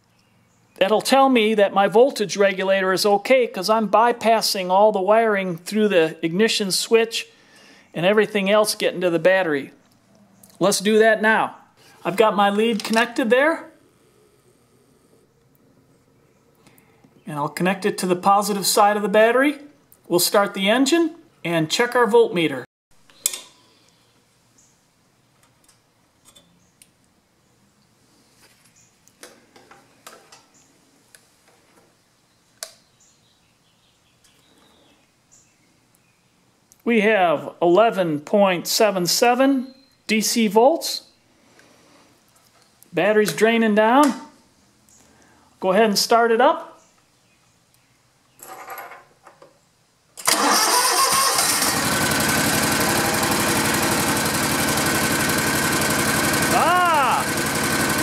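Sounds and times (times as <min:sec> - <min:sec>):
mower engine starting and idling: 0:50.2 - 0:58.0.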